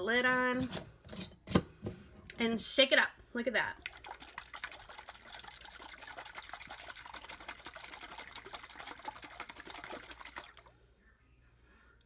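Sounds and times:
liquid sloshing in shaken jar: 3.8s - 10.7s.

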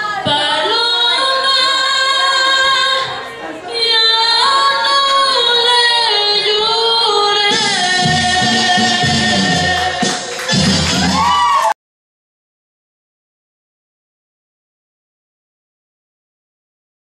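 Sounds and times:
woman singing with vibrato: 0.0s - 11.3s
backing music: 0.0s - 11.7s.

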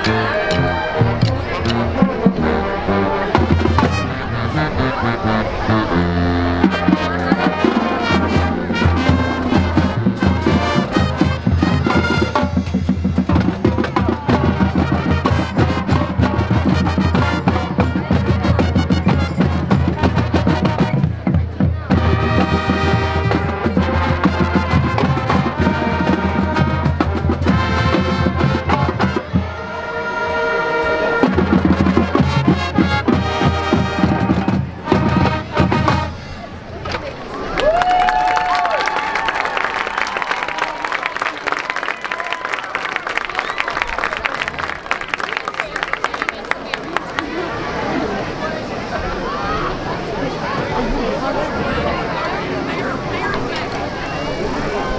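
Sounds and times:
marching band playing: 0.0s - 37.0s
drum hits: 6.6s - 29.4s.

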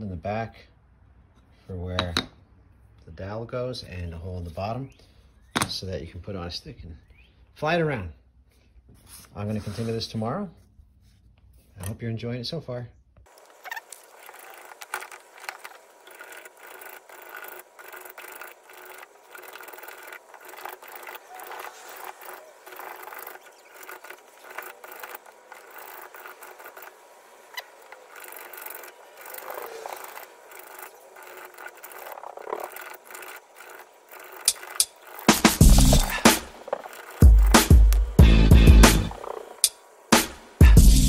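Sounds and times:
hand plane scraping wood: 13.3s - 38.2s.

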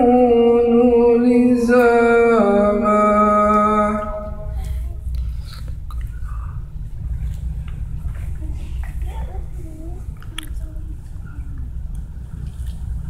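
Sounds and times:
man chanting long note: 0.0s - 4.5s
low steady hum: 0.0s - 13.0s.

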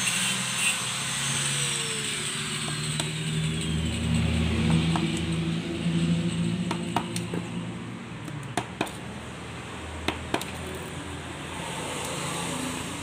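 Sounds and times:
hand tool clicking: 4.1s - 5.4s, 6.5s - 7.5s.

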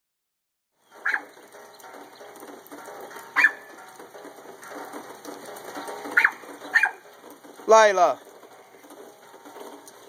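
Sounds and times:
rain falling: 0.8s - 10.0s
small dog barking: 1.0s - 1.3s, 3.4s - 3.6s, 6.2s - 7.0s.

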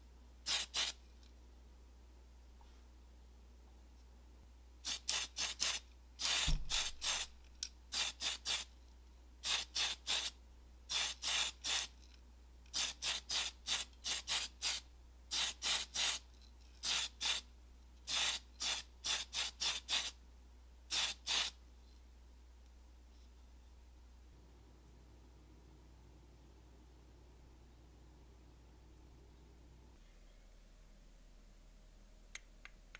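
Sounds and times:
aerosol can spraying hisses: 0.5s - 1.0s, 4.9s - 7.3s, 8.0s - 8.7s, 10.9s - 11.9s, 12.8s - 16.2s, 18.1s - 20.1s, 20.9s - 21.6s.

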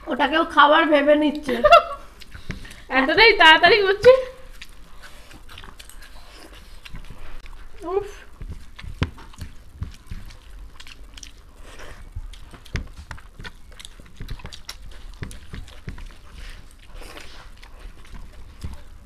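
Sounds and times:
chewing and lip smacks: 2.1s - 2.9s, 4.0s - 19.0s
fingers squishing rice: 4.5s - 19.0s.

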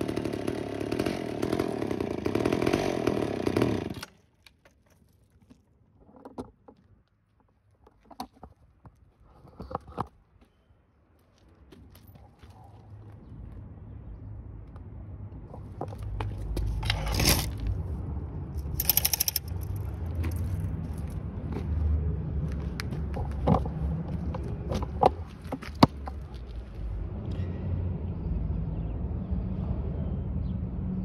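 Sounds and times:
chainsaw idling: 0.0s - 4.2s
short scraping noises: 16.6s - 17.8s
scattered clicks: 18.6s - 20.0s.

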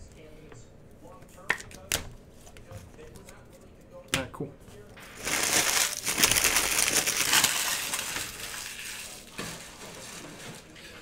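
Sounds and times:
foil wrappers crumpling: 5.0s - 10.7s.

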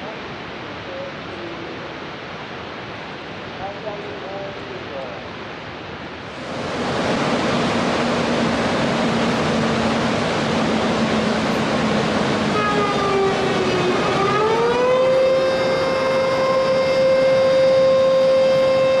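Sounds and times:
water rushing from dam: 0.0s - 19.0s
siren: 12.5s - 19.0s.

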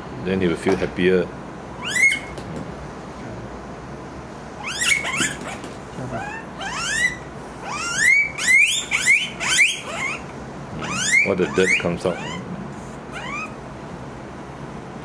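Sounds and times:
guinea pig squealing: 1.8s - 2.4s, 4.6s - 13.6s.

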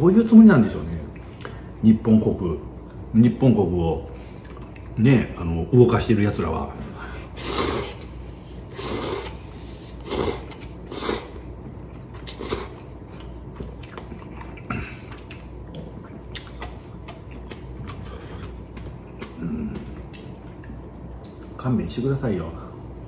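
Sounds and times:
man slurping noodles: 7.4s - 8.1s, 8.7s - 11.4s
quiet chewing: 11.8s - 21.6s.

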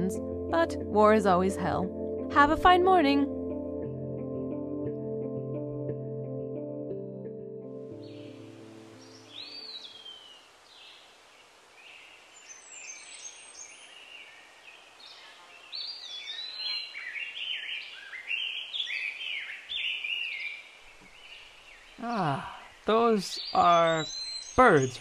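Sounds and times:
faint outdoor hiss: 7.8s - 25.0s
birds chirping and calling: 9.0s - 10.9s, 15.0s - 25.0s.

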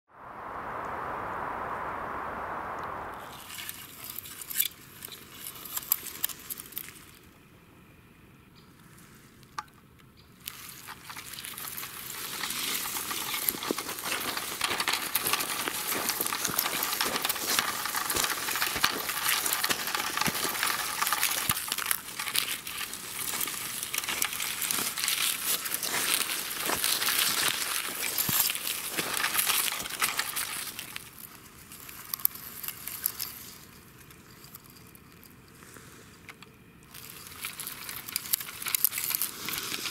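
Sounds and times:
dry leaves crackling: 3.2s - 7.3s, 10.4s - 36.1s, 36.9s - 39.9s.

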